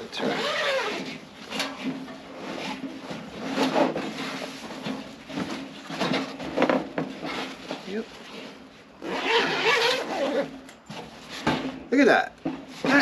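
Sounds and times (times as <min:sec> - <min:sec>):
fabric bag rustling and scraping: 0:00.1 - 0:11.8.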